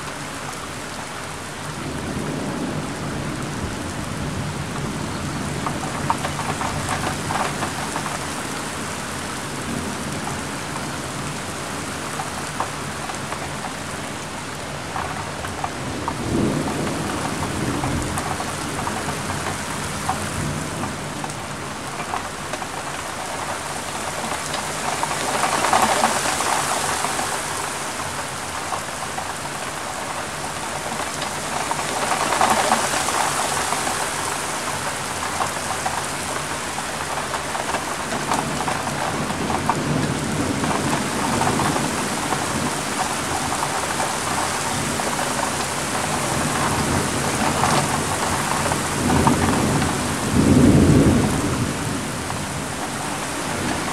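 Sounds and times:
heavy rain falling: 0.0s - 53.9s
raindrops ticking close by: 0.0s - 53.9s
thunder rumbling: 14.9s - 21.3s, 30.4s - 53.9s.

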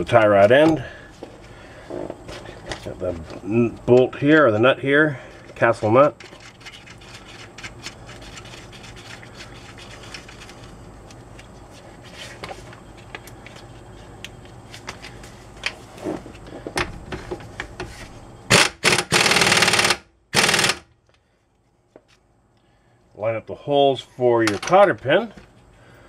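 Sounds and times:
pneumatic impact wrench bursts: 18.5s - 20.9s.

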